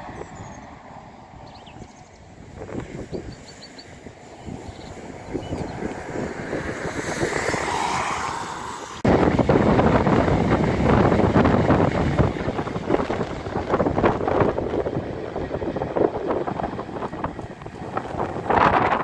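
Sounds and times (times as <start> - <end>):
high-speed train passing: 0.0 - 19.0
passenger train running: 0.0 - 19.0
wind buffeting microphone: 0.0 - 19.0.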